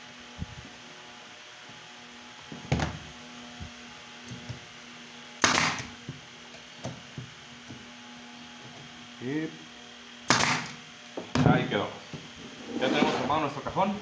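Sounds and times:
nail gun firing: 5.4 - 6.0, 10.3 - 10.8.

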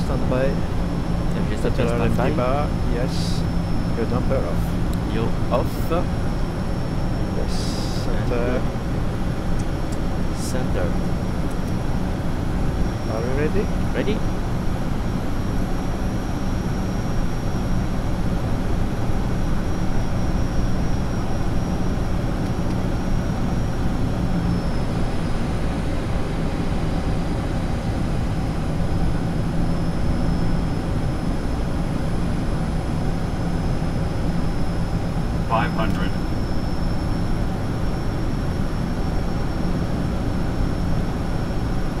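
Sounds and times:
thin high whine: 0.0 - 8.6, 34.2 - 38.5
engine and propeller hum: 0.0 - 42.0.

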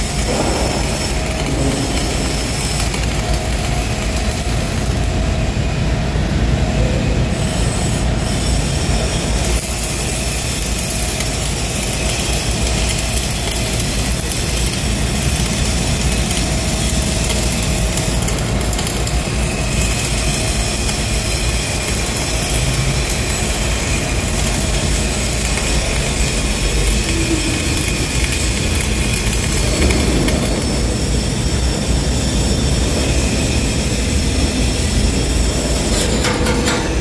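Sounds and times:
welding arc crackle and hiss: 0.0 - 6.6, 7.2 - 37.0
low hum: 0.0 - 7.4.

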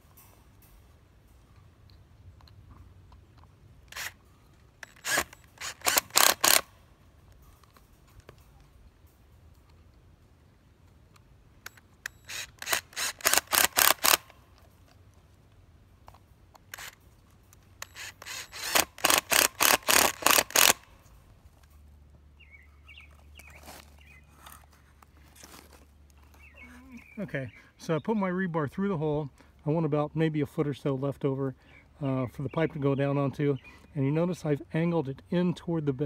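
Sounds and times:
cordless drill into wood: 3.9 - 4.2, 4.8 - 6.7, 12.2 - 14.3, 16.7 - 17.0, 17.8 - 20.9.

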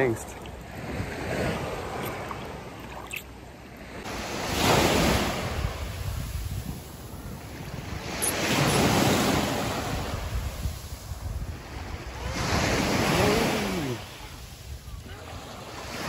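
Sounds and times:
sea waves washing onto beach: 4.0 - 16.0
wind buffeting microphone: 4.9 - 13.4.

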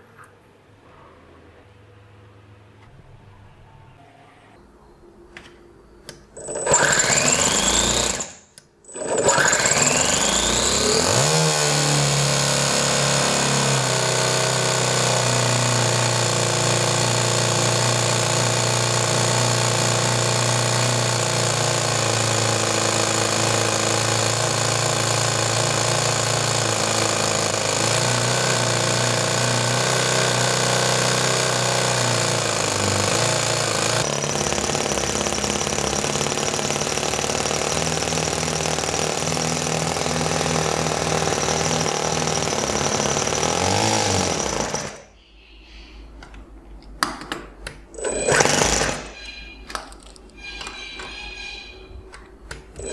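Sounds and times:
model engine running: 6.4 - 45.0, 48.0 - 49.2
starter motor whirring: 6.4 - 45.0, 47.9 - 49.2.

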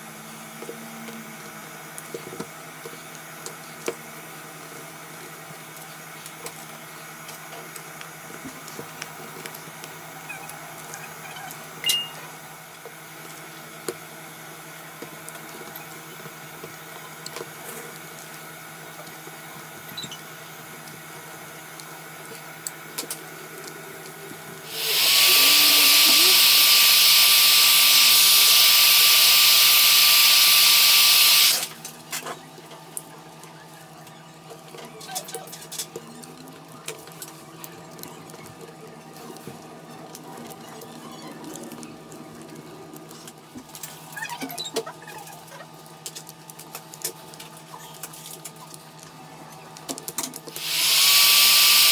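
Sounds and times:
heat gun blowing hiss: 24.6 - 31.7, 50.5 - 51.9.

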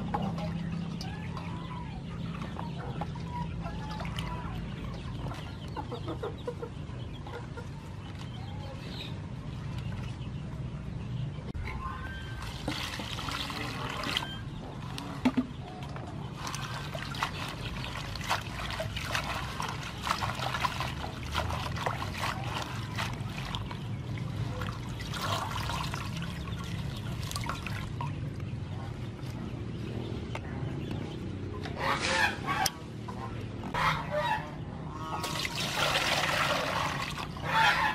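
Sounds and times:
water splashing and sloshing: 0.0 - 37.9
water trickling and dripping: 16.4 - 28.5.

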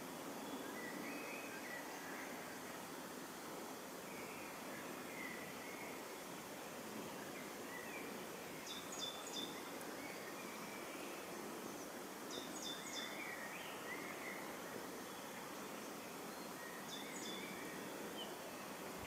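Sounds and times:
outdoor hiss: 0.0 - 19.0
small birds chirping: 4.1 - 19.0.

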